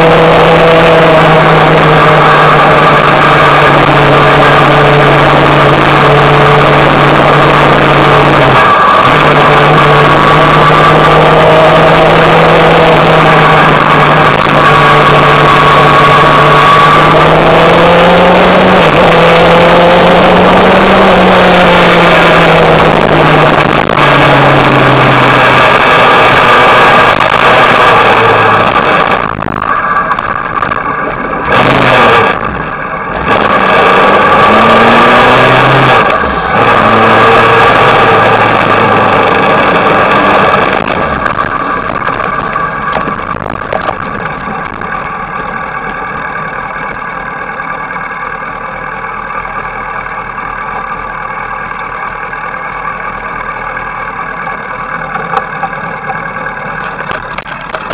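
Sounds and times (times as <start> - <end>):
motorcycle engine revving: 0.0 - 48.8
wind noise on microphone: 20.4 - 36.1, 36.8 - 45.0.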